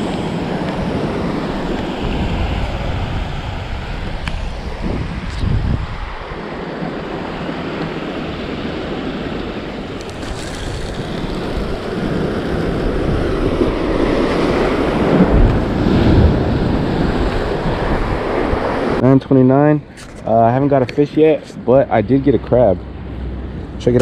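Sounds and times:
ocean surf washing against rocks: 0:00.0 - 0:19.0
wind buffeting microphone: 0:00.0 - 0:19.0.

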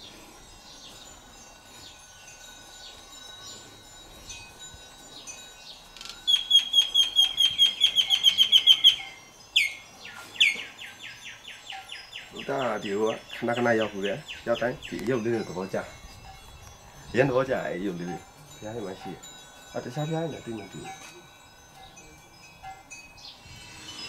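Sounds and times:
small bells tinkling: 0:00.0 - 0:24.0
bird calls: 0:05.1 - 0:15.2
bird trilling: 0:05.2 - 0:15.0.

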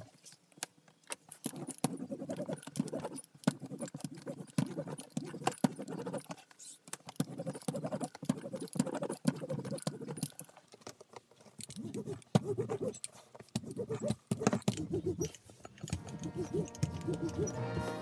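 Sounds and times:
metal tool scraping a strap: 0:01.3 - 0:18.0
music: 0:16.0 - 0:18.0.

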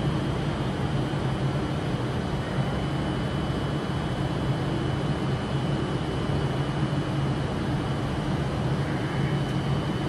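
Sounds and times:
faint high whine: 0:02.1 - 0:06.8, 0:08.6 - 0:10.0.

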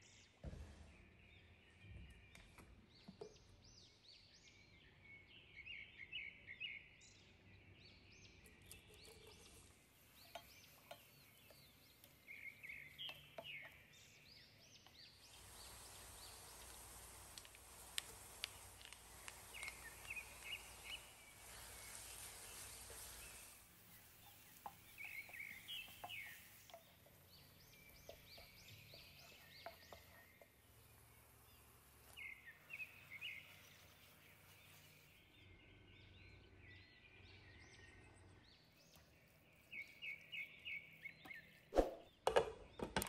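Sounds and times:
faint bird chirps: 0:00.0 - 0:42.2
soft steady hiss: 0:08.5 - 0:35.8.

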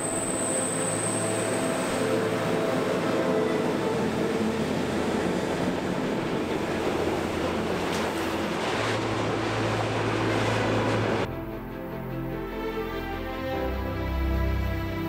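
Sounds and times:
train wheels rumbling on rails: 0:00.0 - 0:11.3.

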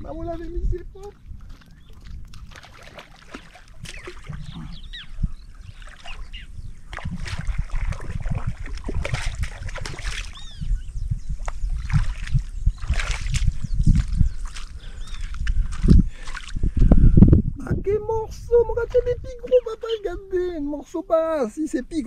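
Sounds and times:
seawater splashing against rocks: 0:01.2 - 0:04.6, 0:05.7 - 0:10.5.

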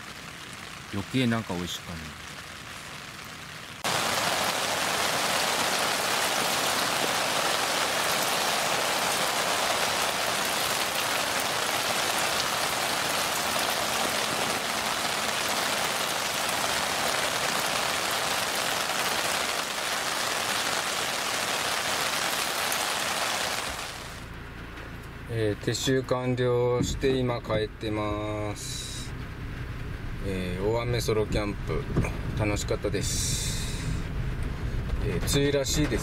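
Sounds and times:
heavy rain falling: 0:00.0 - 0:24.3.

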